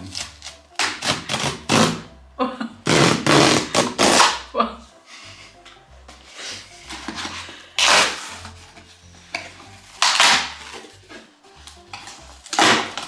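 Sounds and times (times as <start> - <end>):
background music with bass: 0.0 - 13.0
cardboard box ripping: 2.9 - 4.4, 7.8 - 8.6, 10.0 - 10.9.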